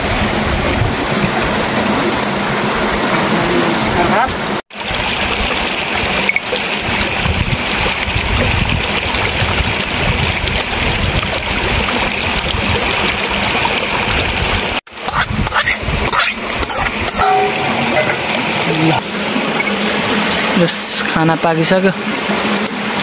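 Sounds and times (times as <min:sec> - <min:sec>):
stream running: 0:00.0 - 0:23.0
metal spoon scraping metal pan: 0:15.0 - 0:18.3.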